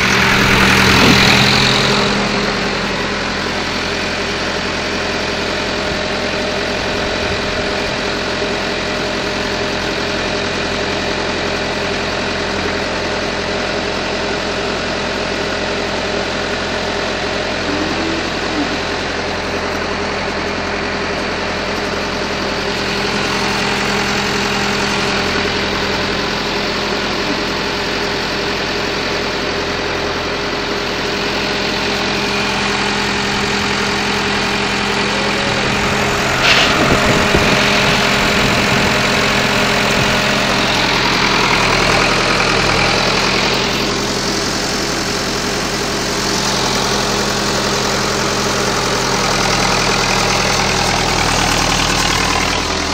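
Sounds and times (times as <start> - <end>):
tractor diesel engine idling: 0.0 - 52.9.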